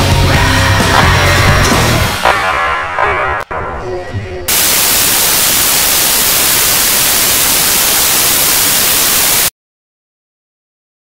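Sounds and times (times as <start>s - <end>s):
loud static hiss: 4.5s - 9.5s.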